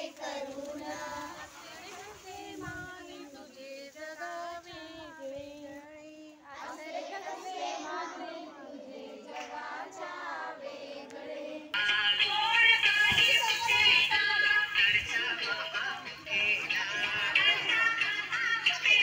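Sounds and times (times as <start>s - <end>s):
girls and women singing folk song: 0.0s - 19.0s.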